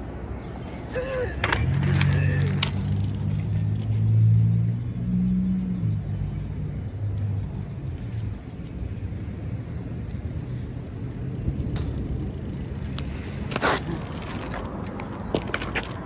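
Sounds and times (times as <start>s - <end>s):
bike rolling over gravelly asphalt: 0.3s - 4.0s, 7.9s - 16.0s
bike tyre scraping to a stop: 11.7s - 14.7s.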